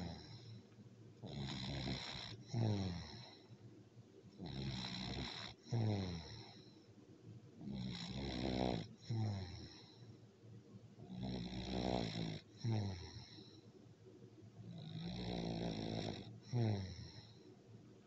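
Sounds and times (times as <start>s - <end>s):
cat snoring: 0.0s - 0.6s, 1.2s - 3.5s, 4.4s - 6.8s, 7.6s - 10.1s, 11.0s - 13.6s, 14.7s - 17.5s.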